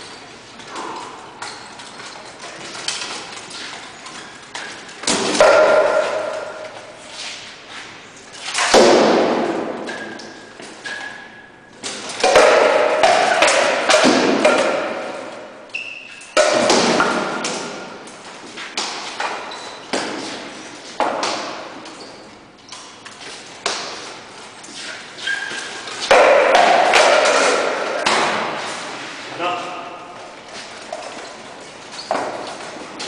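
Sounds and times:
swords striking shield and armour: 8.6 - 10.2, 12.2 - 15.5, 16.4 - 17.8.

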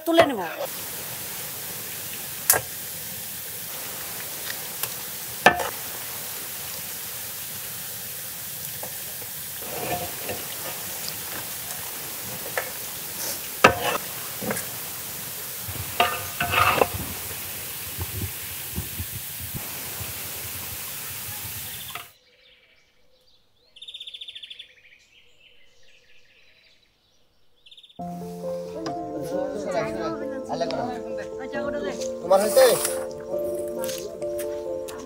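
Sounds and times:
hot oil sizzling: 0.0 - 22.2, 28.0 - 28.9, 32.2 - 34.5
metal ladle clinking against pan: 5.5 - 5.8, 13.6 - 14.7, 16.0 - 17.0.

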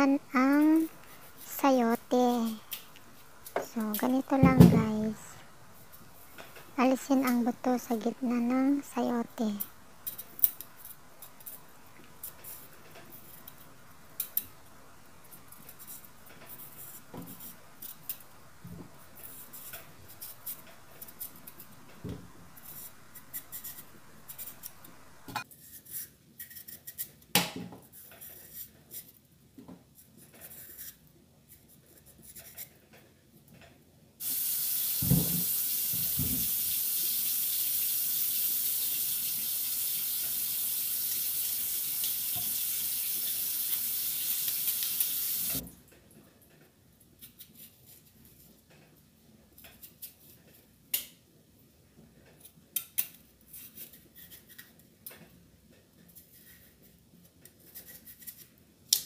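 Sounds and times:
tap water running into sink: 34.2 - 45.6
vegetable peeling scrapes: 57.5 - 58.5.

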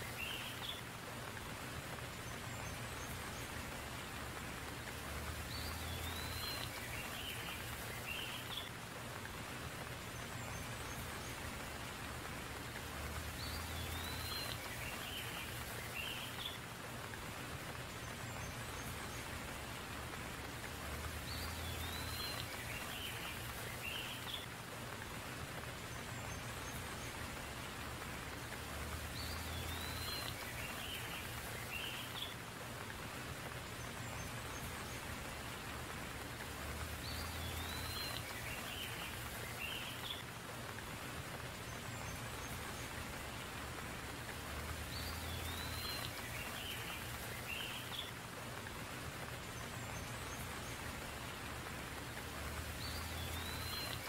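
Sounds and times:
steady rain falling: 0.0 - 54.0.

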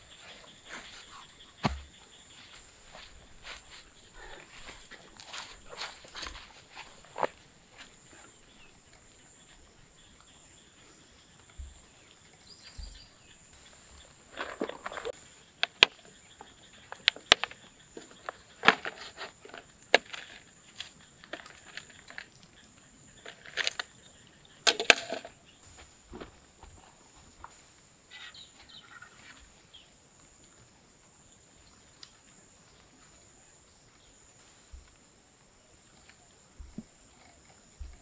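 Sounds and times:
plastic and metal clatters: 24.7 - 25.4.

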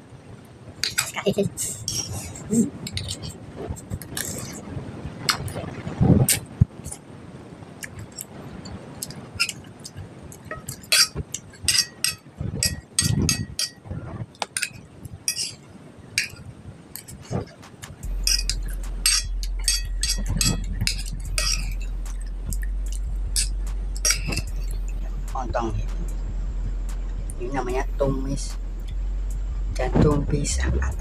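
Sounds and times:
low steady hum: 0.0 - 31.0
metal spoon scraping glass plate: 10.6 - 13.8, 14.6 - 15.5, 18.3 - 21.8.

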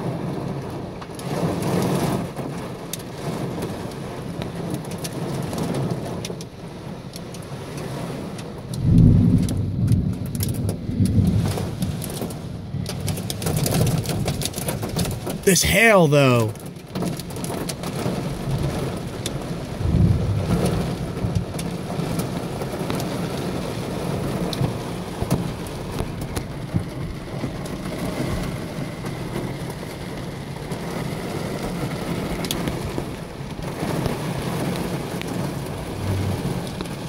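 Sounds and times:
thunder rumbling: 8.8 - 12.2, 19.7 - 22.8, 35.5 - 37.0.

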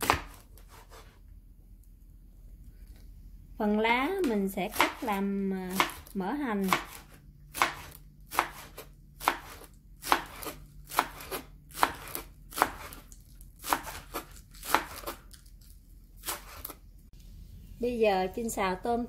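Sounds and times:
knife chopping on cutting board: 0.0 - 1.2, 4.3 - 15.3, 16.2 - 16.8.

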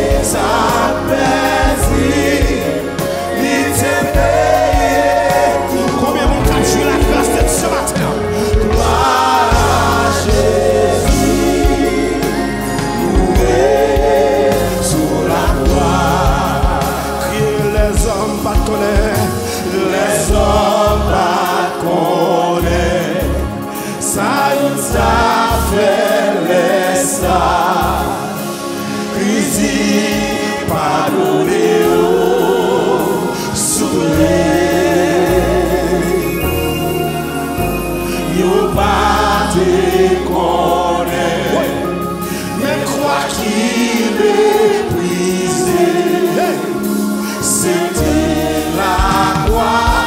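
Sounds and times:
instruments with bass line: 0.0 - 19.4
choir singing a hymn: 0.0 - 50.0.

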